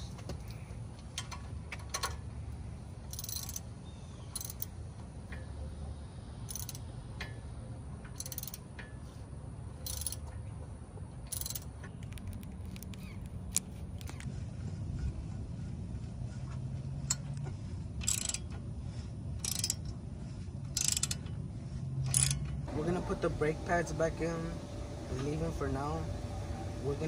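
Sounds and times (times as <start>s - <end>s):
ratchet wrench clicking: 3.1s - 3.7s, 4.3s - 4.7s, 6.5s - 7.3s, 8.0s - 8.8s, 9.8s - 10.2s, 11.3s - 14.3s, 18.0s - 18.5s, 19.4s - 20.0s, 20.7s - 21.3s, 22.1s - 22.5s.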